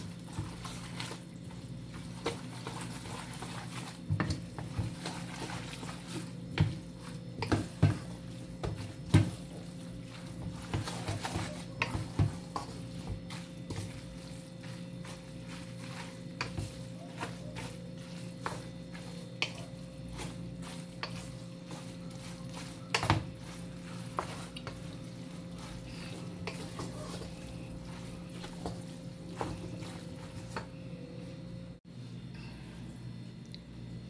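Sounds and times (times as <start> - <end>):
wooden spatula scraping metal pot: 2.0 - 30.8.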